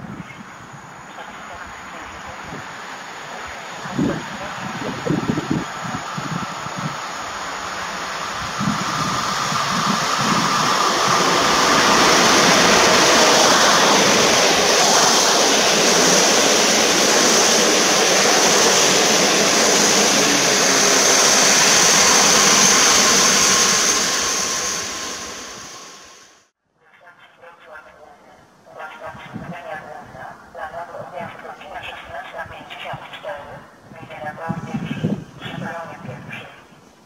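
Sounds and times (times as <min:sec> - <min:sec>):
train wheels rushing on rails: 0:01.1 - 0:26.4.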